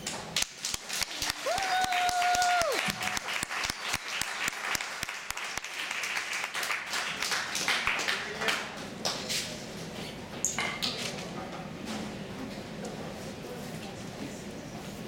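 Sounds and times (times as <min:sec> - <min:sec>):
audience applauding: 0:00.6 - 0:08.7.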